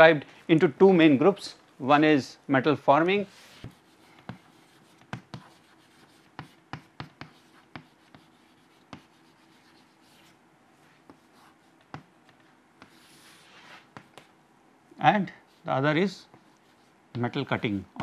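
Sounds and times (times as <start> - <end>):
chalk scratching on board: 3.2 - 12.1, 12.8 - 14.3, 15.4 - 17.0
chalk tapping on chalkboard: 3.6 - 10.3, 11.0 - 13.2, 13.9 - 14.3.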